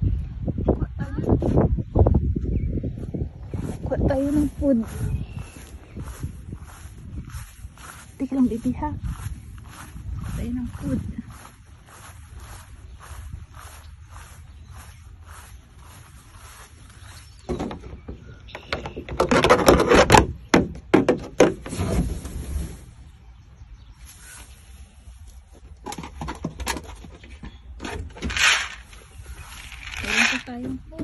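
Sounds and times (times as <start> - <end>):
wind rumble on microphone: 0.0 - 20.5, 21.6 - 31.0
clattering and rustling of objects: 25.2 - 31.0.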